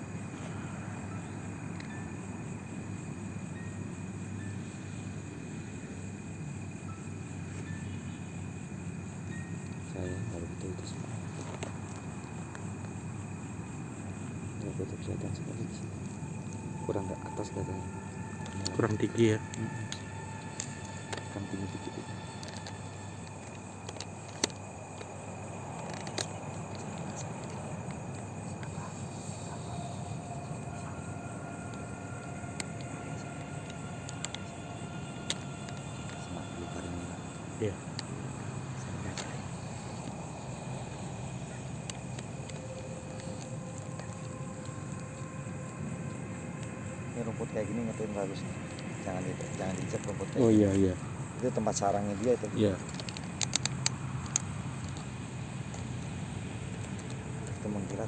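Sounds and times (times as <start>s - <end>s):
insect trill: 0.0s - 58.0s
steady low rumble: 9.8s - 50.3s.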